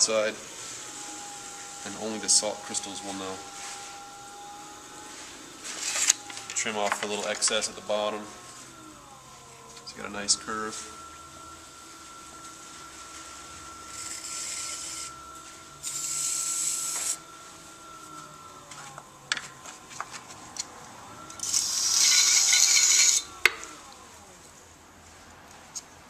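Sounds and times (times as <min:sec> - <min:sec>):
potter's wheel motor humming: 0:00.0 - 0:25.6
tool scraping clay: 0:13.9 - 0:15.2, 0:15.8 - 0:17.2.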